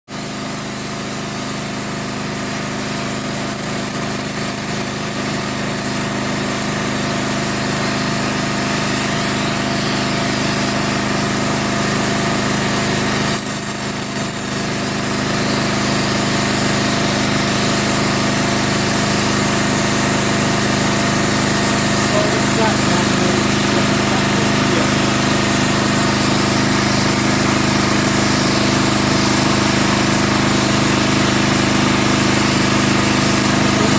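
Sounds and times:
steam jetting hiss: 0:03.0 - 0:33.9
machine hum: 0:19.3 - 0:33.9.

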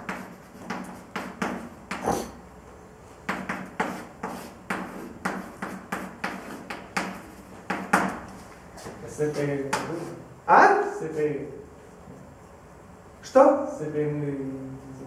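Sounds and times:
chalk tapping and scratching: 0:00.0 - 0:02.4, 0:03.2 - 0:10.2.

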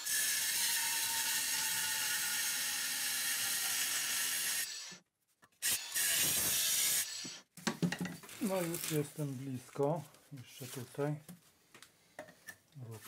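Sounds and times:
angle grinder cutting steel: 0:00.0 - 0:05.0, 0:05.6 - 0:07.4.

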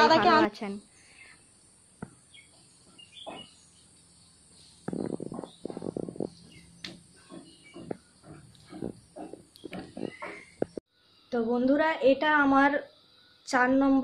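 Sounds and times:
knocks and clatter: 0:04.8 - 0:10.8.

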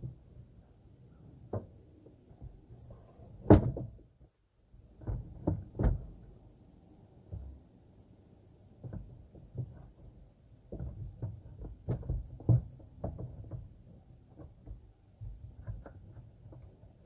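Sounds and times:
plastic knocking against metal: 0:10.7 - 0:16.6.

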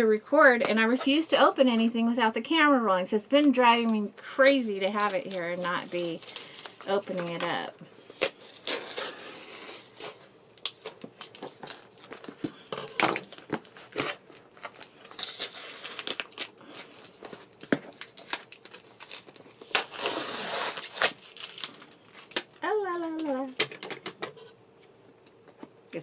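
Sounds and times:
package wrapping crinkling and tearing: 0:04.7 - 0:23.5.

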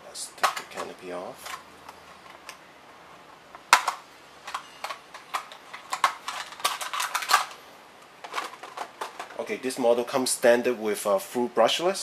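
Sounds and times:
plastic canopy clicking and rattling: 0:03.8 - 0:07.6.

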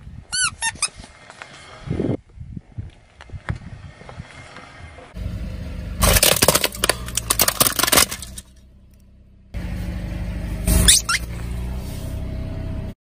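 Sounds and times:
rubber toy squeak: 0:00.3 - 0:01.1, 0:10.8 - 0:11.3
car engine hum: 0:00.9 - 0:13.0.

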